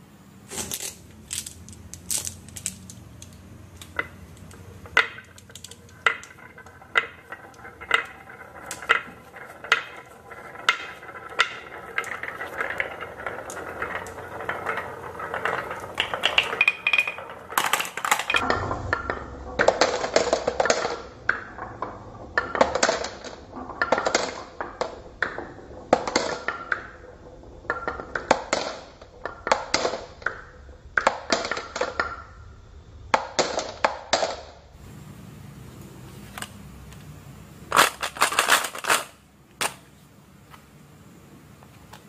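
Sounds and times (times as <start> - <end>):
marbles dropping into plastic teapot: 0.6 - 18.4
marbles clacking down wooden run: 0.9 - 32.5.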